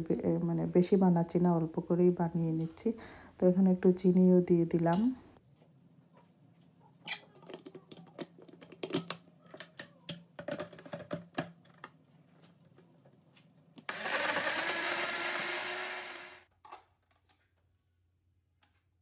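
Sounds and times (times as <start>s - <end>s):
blender running: 13.9s - 16.5s.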